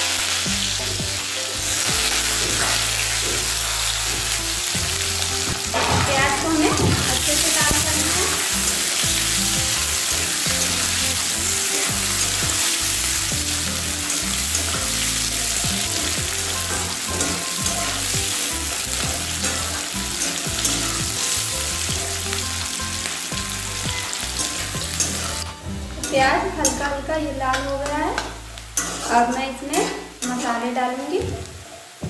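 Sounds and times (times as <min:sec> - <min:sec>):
onions sizzling in hot oil: 0:00.0 - 0:32.0
metal spatula scraping pan: 0:02.0 - 0:04.3, 0:14.0 - 0:21.8, 0:24.0 - 0:26.9, 0:27.5 - 0:30.6.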